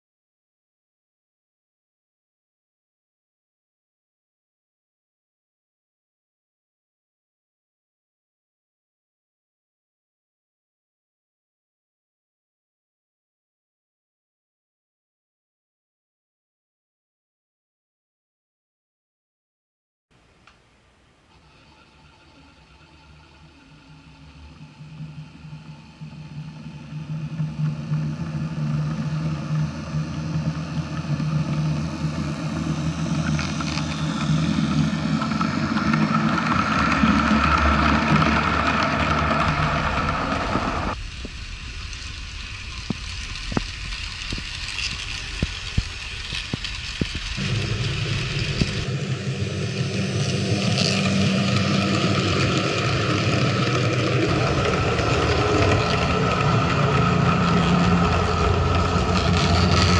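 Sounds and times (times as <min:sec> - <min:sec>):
model train motor humming: 0:21.3 - 0:59.9
model train wheels rumbling: 0:21.3 - 0:59.9.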